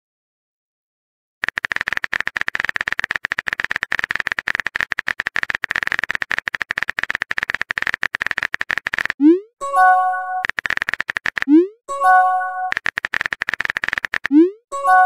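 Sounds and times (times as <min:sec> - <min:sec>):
phone keyboard typing clicks: 0:01.4 - 0:09.3, 0:10.3 - 0:11.8, 0:12.4 - 0:14.6.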